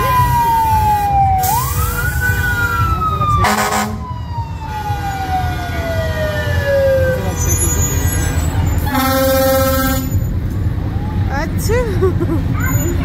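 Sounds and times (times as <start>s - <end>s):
siren wailing: 0.0s - 7.8s
short loud horn blast: 3.4s - 4.0s.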